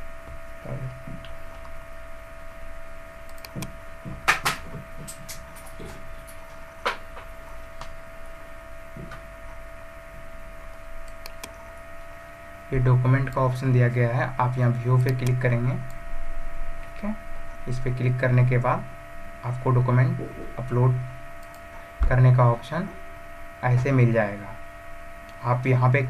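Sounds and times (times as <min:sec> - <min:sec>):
steady electrical hum: 0:00.0 - 0:26.0
sharp clicks: 0:03.2 - 0:03.7, 0:11.0 - 0:11.6, 0:15.0 - 0:16.0, 0:21.4 - 0:21.6.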